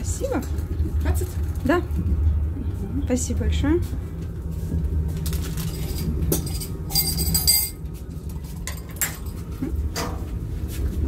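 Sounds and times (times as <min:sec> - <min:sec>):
train carriage rumble: 0:00.0 - 0:07.8
glass clinking in metal holder: 0:05.8 - 0:07.8.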